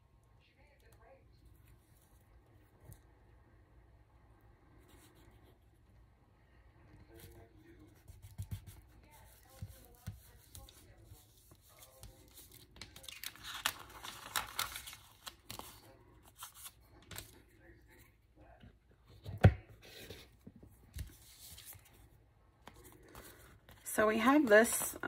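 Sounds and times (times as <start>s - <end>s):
paper rustling: 7.0s - 17.4s, 19.8s - 25.0s.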